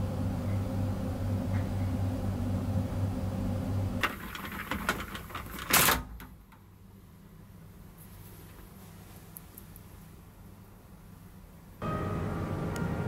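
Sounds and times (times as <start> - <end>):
screen rolling up rush: 4.0 - 6.1
privacy screen clicking and rattling: 4.0 - 6.3
low hum: 11.8 - 13.0.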